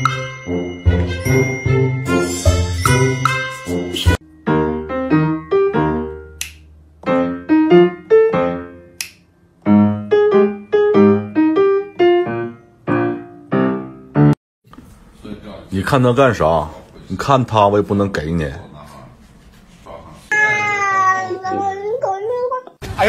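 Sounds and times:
piano music: 0.0s - 6.4s, 7.0s - 14.4s.

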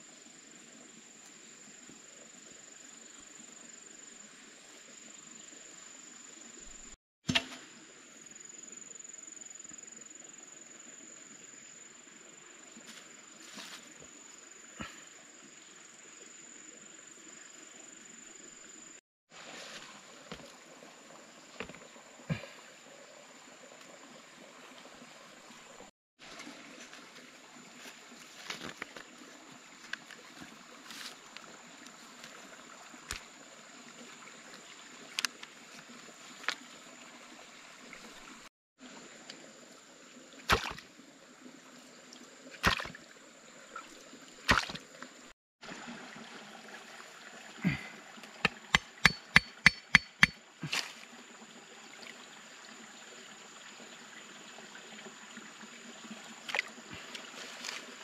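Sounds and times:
water trickling: 16.8s - 58.0s.

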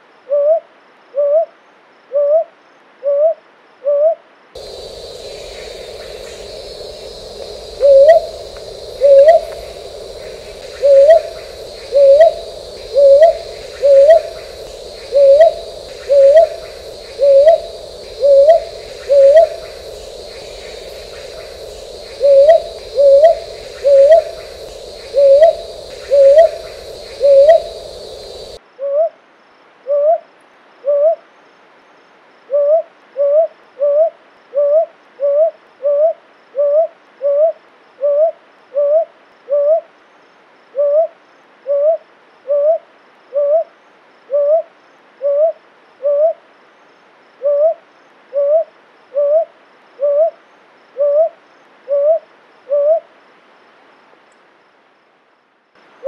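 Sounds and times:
owl hooting: 3.9s - 28.6s
background hiss: 4.6s - 28.6s, 46.5s - 56.0s.

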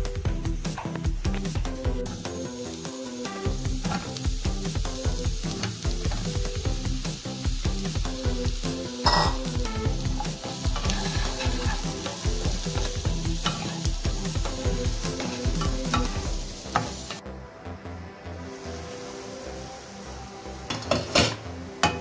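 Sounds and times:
food sizzling in a frying pan: 0.0s - 17.2s, 18.2s - 22.0s
wooden spatula scraping a pan: 10.7s - 12.3s.

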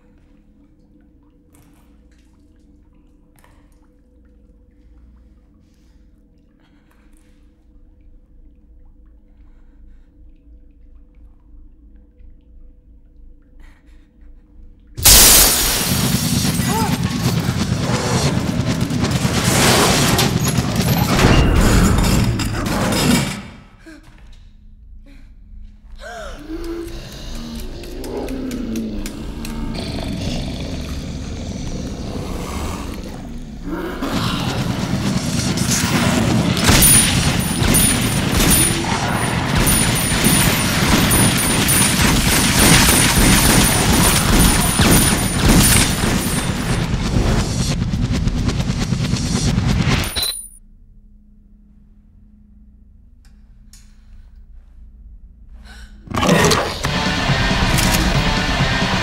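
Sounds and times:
pistol shots and crashing: 15.0s - 23.6s, 35.7s - 46.8s.

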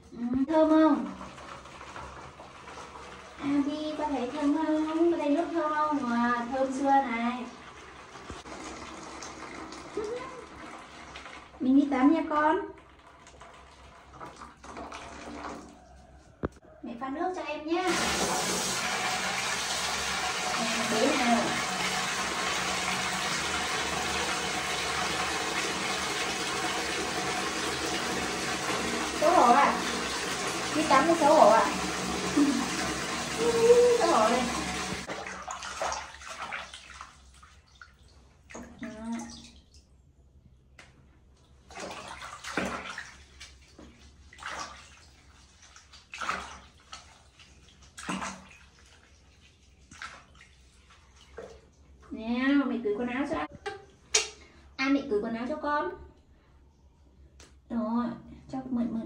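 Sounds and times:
tap water pouring into basin: 1.0s - 11.7s, 12.7s - 16.0s, 17.9s - 39.9s, 41.6s - 52.2s.

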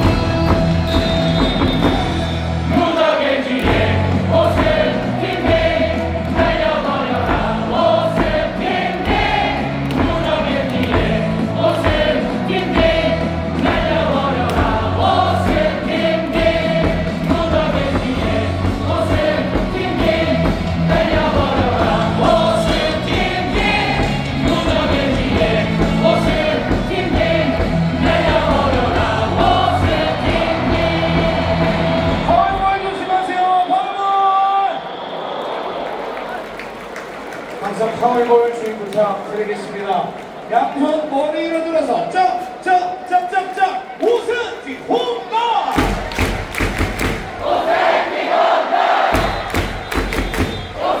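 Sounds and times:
crowd singing along: 0.0s - 33.2s, 46.4s - 51.0s
loud stadium music with bass beat: 0.0s - 37.7s, 38.8s - 51.0s.

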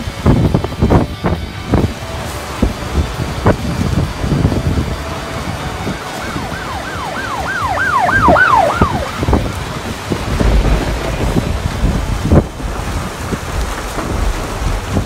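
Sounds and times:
wind buffeting microphone: 0.0s - 15.0s
electronic siren yelping: 5.4s - 9.9s.

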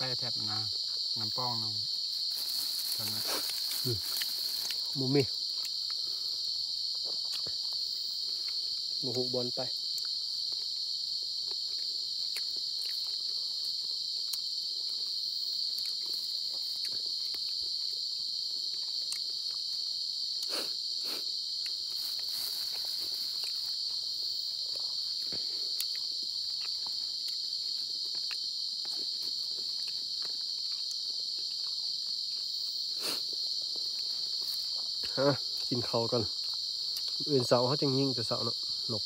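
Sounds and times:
night insects chorus: 0.0s - 39.0s
hands picking at food: 2.2s - 5.0s.

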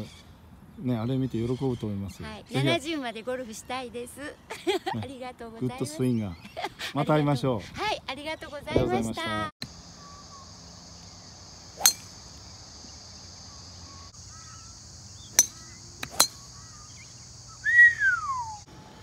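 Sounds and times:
high insect buzz: 9.6s - 18.7s
faint bird chirps: 9.7s - 18.7s
golf clubs striking balls: 11.8s - 12.2s, 15.3s - 16.6s
whistle gliding down: 17.6s - 18.7s.

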